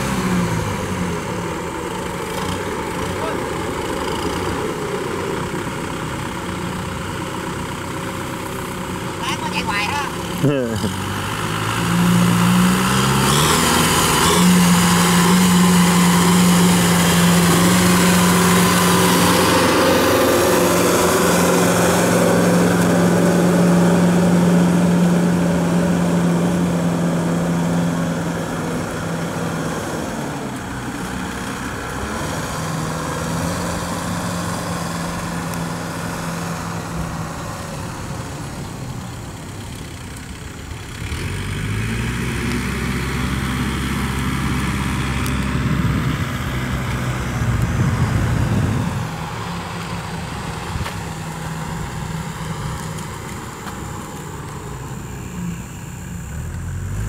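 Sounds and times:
tractor diesel engine humming: 0.0s - 57.0s.

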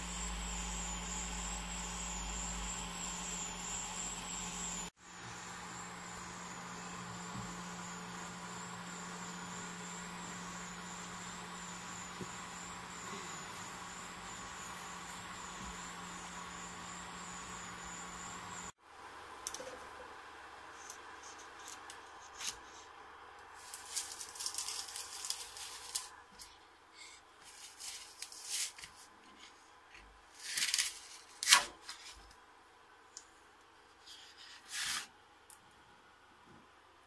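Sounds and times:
three d printer running: 0.0s - 18.7s
plastic sheet crinkling and peeling: 23.6s - 26.5s, 27.4s - 29.2s, 30.3s - 32.3s.

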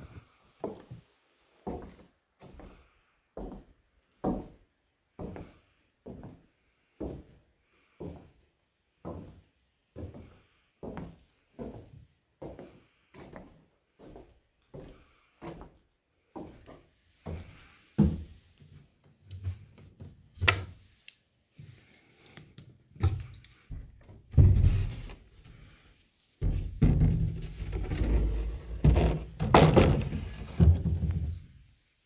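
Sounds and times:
footsteps on wooden floorboards: 0.0s - 2.8s, 3.4s - 4.6s, 5.2s - 6.4s, 7.0s - 7.4s, 9.0s - 9.4s, 10.0s - 20.7s, 26.4s - 31.4s.

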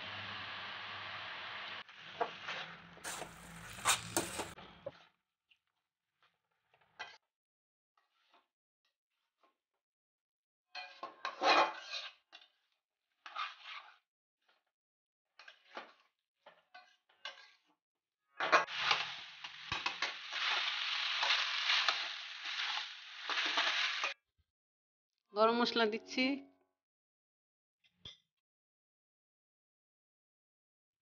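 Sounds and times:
food sizzling in hot pan: 0.0s - 4.6s, 18.5s - 24.2s
metal spatula scraping pan: 2.5s - 4.6s, 10.8s - 12.6s.

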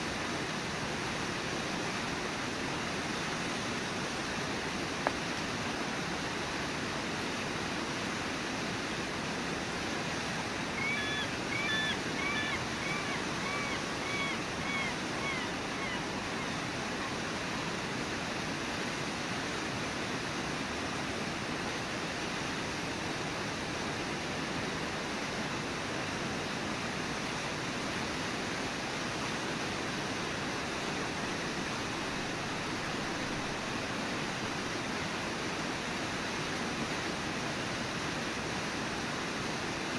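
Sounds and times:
waterfall roaring: 0.0s - 39.9s
short high arched calls: 10.7s - 17.2s.

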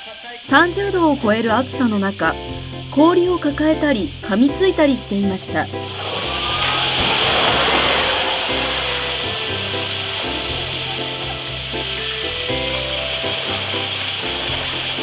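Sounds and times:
background music: 0.5s - 15.0s
water splashing and churning: 5.9s - 15.0s.

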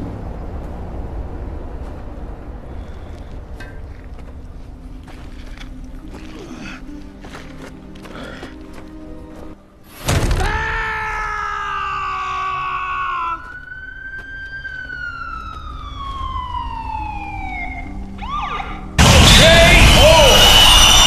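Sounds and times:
loud blast: 19.0s - 21.0s
sudden impact hit: 19.0s - 21.0s.

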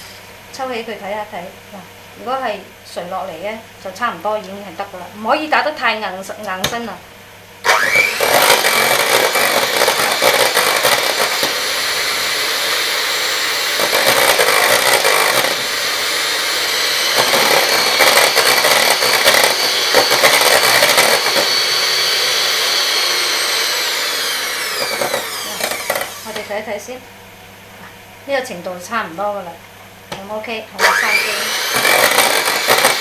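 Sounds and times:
electric hand mixer whining: 7.6s - 26.7s, 30.8s - 33.0s.

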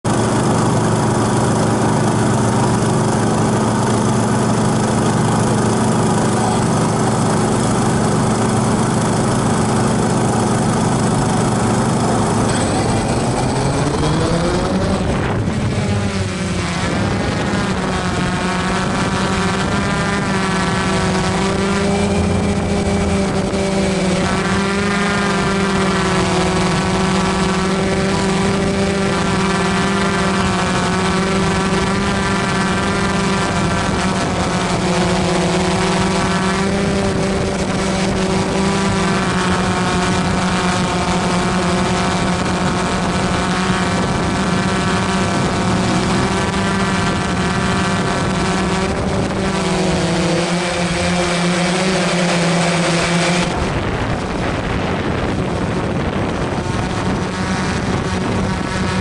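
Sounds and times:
motor drone: 0.0s - 59.0s
rushing noise: 10.1s - 26.9s.

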